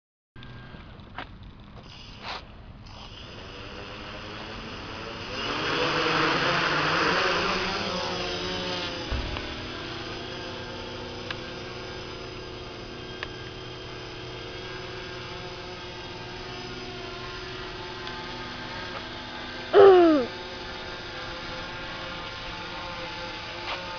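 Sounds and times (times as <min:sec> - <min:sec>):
drone propellers whining: 0:00.4 - 0:23.9
thump: 0:09.1 - 0:09.6.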